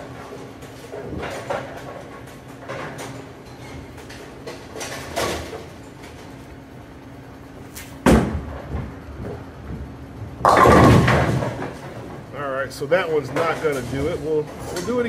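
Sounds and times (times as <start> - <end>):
machine hum: 0.0 - 15.0
bowling ball thud: 8.0 - 12.2
bowling ball rolling: 8.2 - 12.3.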